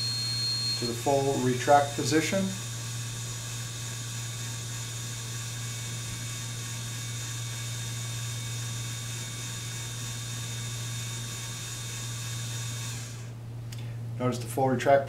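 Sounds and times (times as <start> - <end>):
low hum: 0.0 - 9.1.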